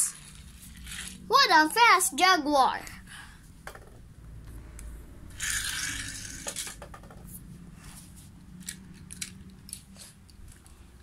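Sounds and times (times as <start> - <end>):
toy cars and track clicking: 5.4 - 7.2, 8.6 - 10.7.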